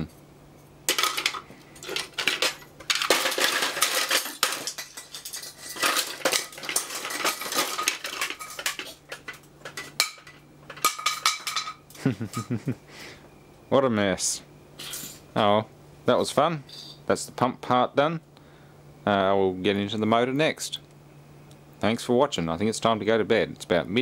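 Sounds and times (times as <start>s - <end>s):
faint steady hum: 0.0s - 24.0s
plastic parts clattering on metal tray: 0.9s - 11.8s.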